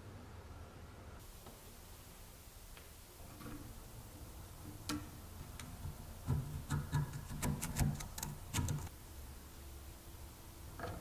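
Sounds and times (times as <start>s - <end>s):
screwdriver clicking on metal: 6.7s - 8.9s.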